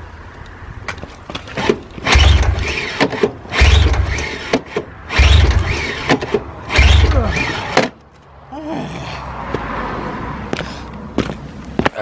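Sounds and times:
pull-starter rope whir: 1.3 - 8.0
engine turning over: 1.4 - 8.0.

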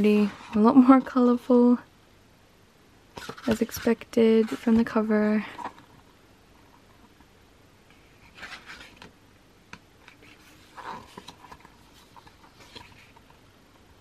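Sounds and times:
book pages rustling: 3.2 - 7.1, 7.9 - 9.1, 10.0 - 13.9.

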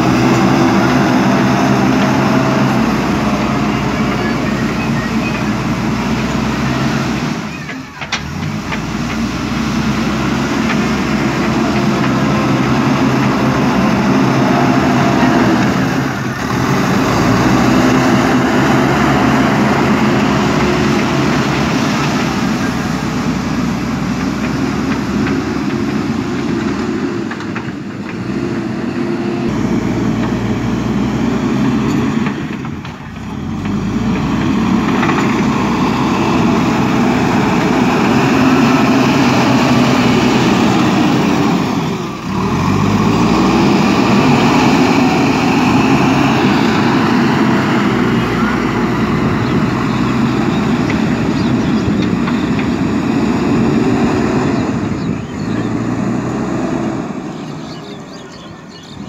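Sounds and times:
diesel engine revving under load: 0.0 - 59.0.

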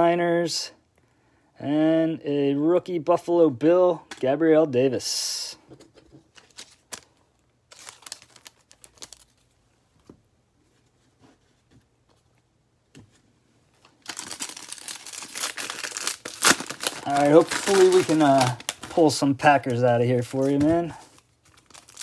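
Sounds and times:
foil pack crinkling and tearing: 6.4 - 9.4, 13.9 - 22.0.

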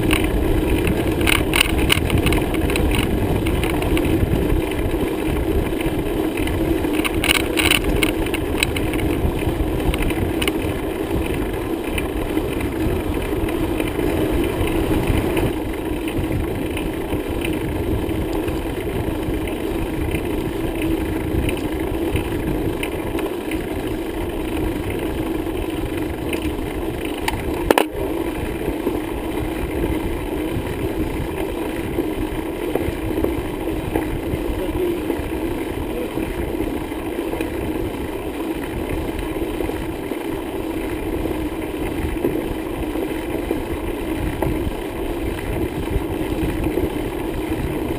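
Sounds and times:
bicycle rattles: 0.0 - 47.9
bicycle rumbling on road: 0.0 - 47.9.

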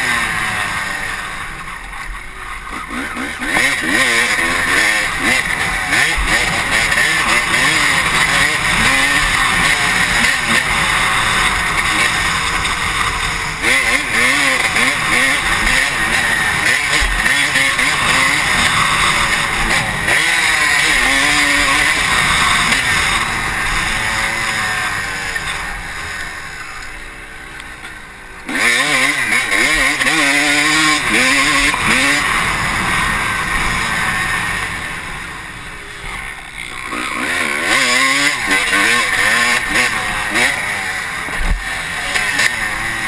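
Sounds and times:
motocross bike engine revving: 0.0 - 43.0.

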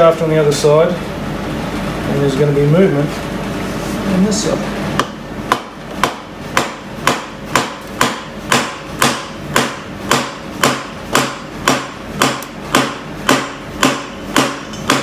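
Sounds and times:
hammer tapping on metal shaft: 5.0 - 15.0.

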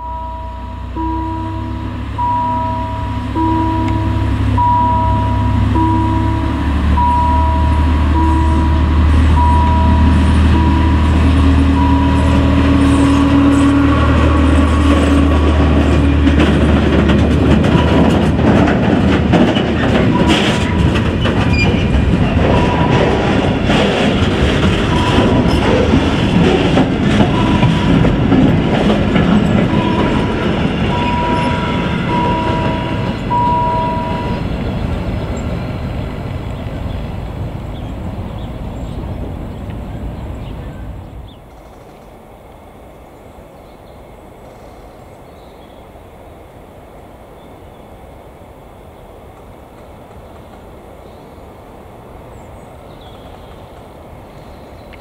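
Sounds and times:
diesel locomotive engine: 0.0 - 55.0
freight wagons wheel clatter: 2.0 - 41.6.

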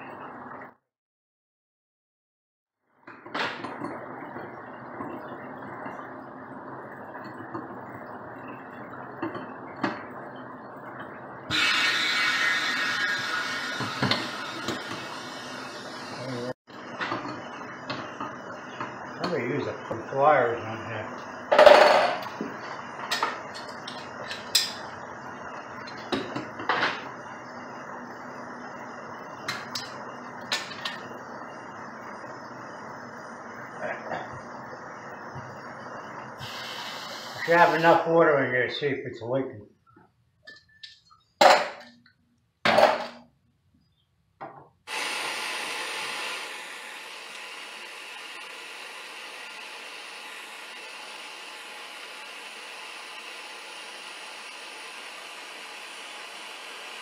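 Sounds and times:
torch flame hissing: 11.5 - 16.5, 27.0 - 38.2, 44.9 - 57.0.

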